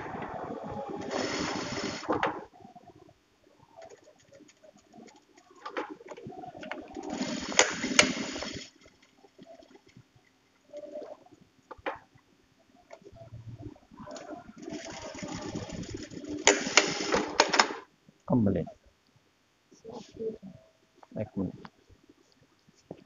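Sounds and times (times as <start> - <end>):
sewing machine stitching: 0.0 - 2.4, 6.7 - 8.8, 14.1 - 17.8.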